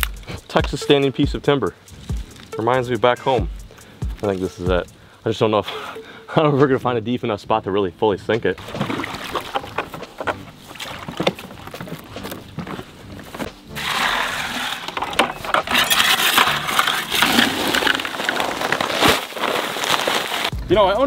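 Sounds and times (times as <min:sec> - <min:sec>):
water sloshing in plastic bucket: 0:08.6 - 0:20.5
wet concrete mixed by hand: 0:08.6 - 0:20.6.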